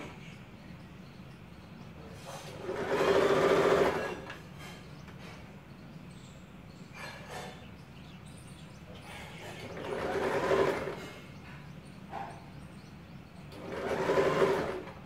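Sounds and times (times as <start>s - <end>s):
sewing machine whirring: 2.4s - 4.4s, 9.6s - 11.2s, 13.5s - 15.0s.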